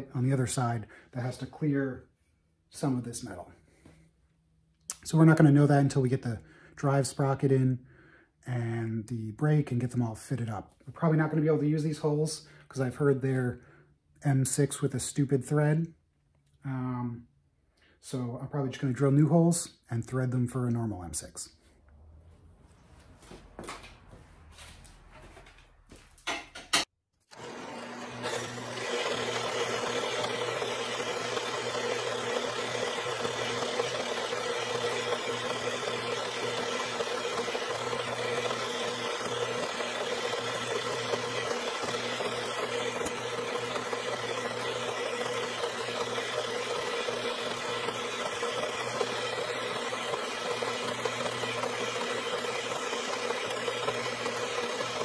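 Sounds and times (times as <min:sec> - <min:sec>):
band saw cutting steel: 0:27.3 - 0:55.0.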